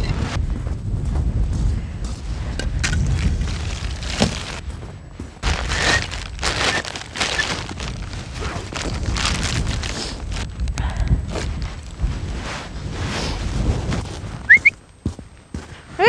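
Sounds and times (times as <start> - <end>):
wind buffeting microphone: 0.0 - 14.8
ice and tarp rustling and crunching: 2.8 - 10.7, 11.3 - 14.5.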